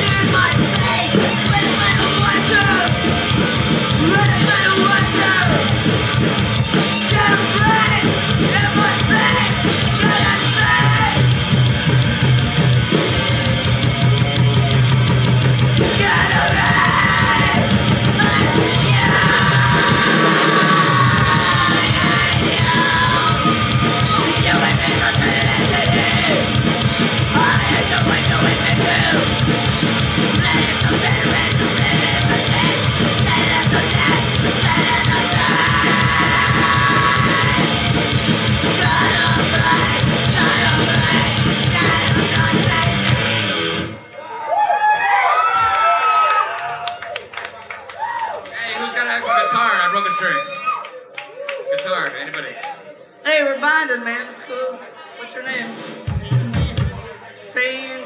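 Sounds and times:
punk rock band playing: 0.0 - 44.1
yelled vocals: 0.0 - 44.4.

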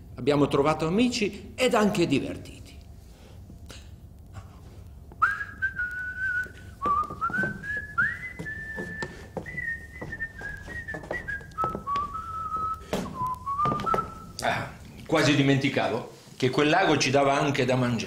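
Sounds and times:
man whistling a tune: 5.2 - 14.4
footsteps on wooden floorboards: 6.4 - 14.2.

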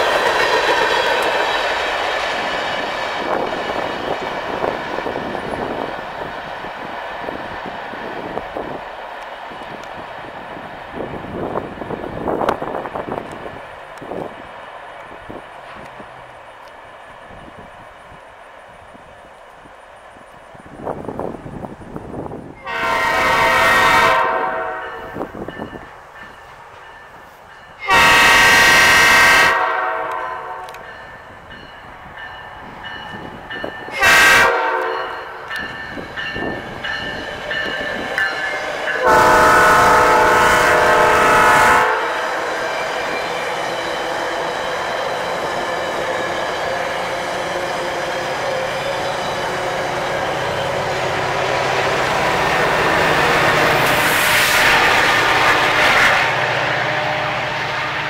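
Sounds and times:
train wheels on rail: 0.0 - 58.0
locomotive air horn blasts: 22.6 - 25.3, 27.8 - 30.8, 33.9 - 35.3, 39.0 - 42.7.

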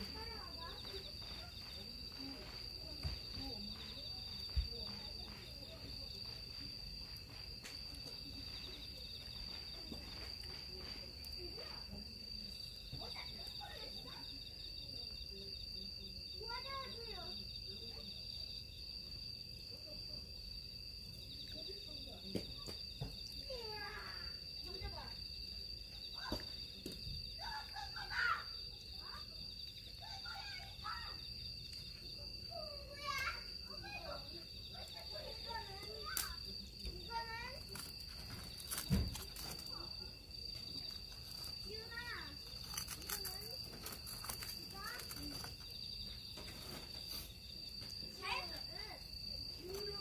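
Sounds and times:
faint voices: 0.0 - 18.2
crickets chirping: 0.0 - 50.0
faint distant voices: 0.0 - 50.0.

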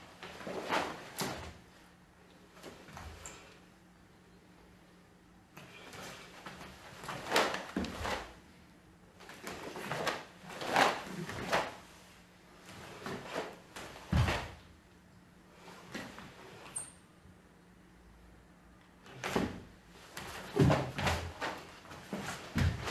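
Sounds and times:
heavy foot stamp: 13.3 - 14.6, 20.2 - 22.9
bare feet sliding on wooden floor: 19.2 - 22.9.

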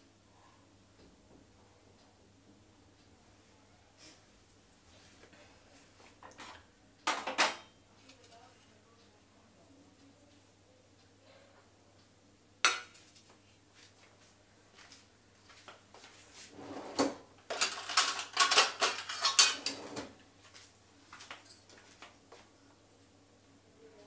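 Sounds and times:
utensils and dishes clattering: 6.2 - 7.8, 16.5 - 20.2.

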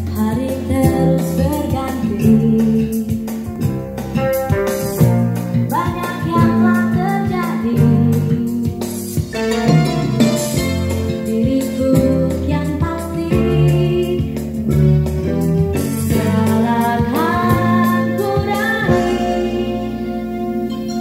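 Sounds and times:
song with singing and band: 15.6 - 20.3.

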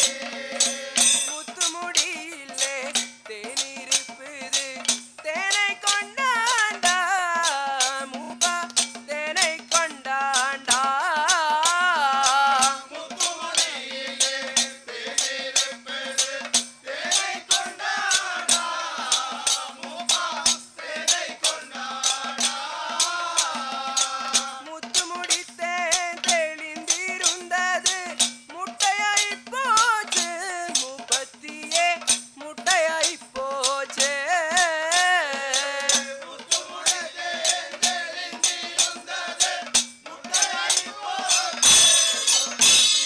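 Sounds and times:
folk singing: 0.0 - 42.8
sharp percussion strikes: 0.0 - 43.0
rattling jingle: 30.0 - 43.0.

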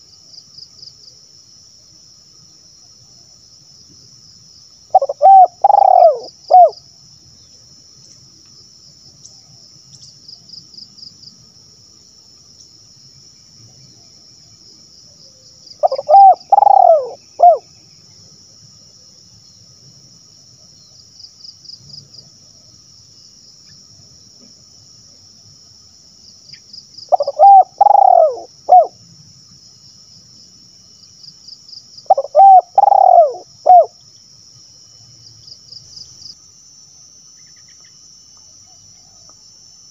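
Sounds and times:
high insect trill: 0.0 - 39.9
dove cooing: 4.9 - 6.8, 15.8 - 17.6, 27.1 - 29.0, 32.1 - 34.0.

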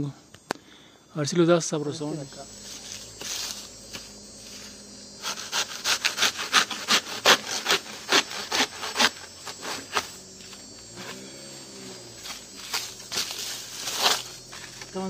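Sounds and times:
sawing plant stem: 2.5 - 11.2, 11.8 - 15.0.

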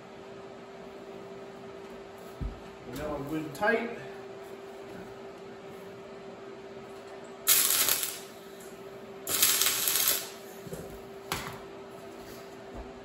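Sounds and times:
steady low hum: 0.0 - 13.0
welder tack welds: 7.5 - 8.4, 9.2 - 10.5.

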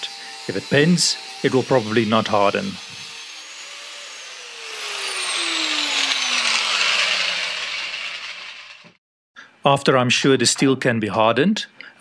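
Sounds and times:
angle grinder winding down: 0.0 - 9.0.

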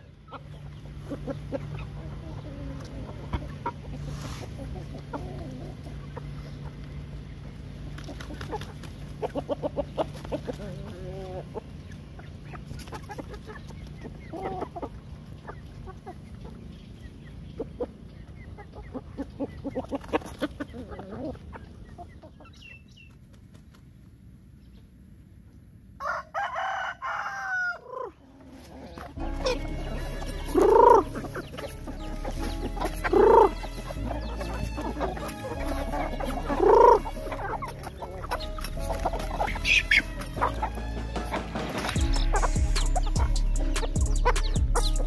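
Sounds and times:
chickens clucking: 0.0 - 45.0.

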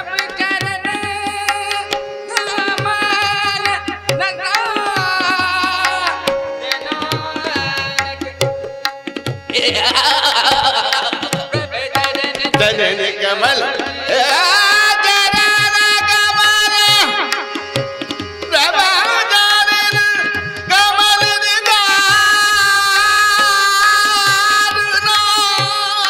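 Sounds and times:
harmoniums playing: 0.0 - 26.0
tabla drumming: 0.0 - 26.0.

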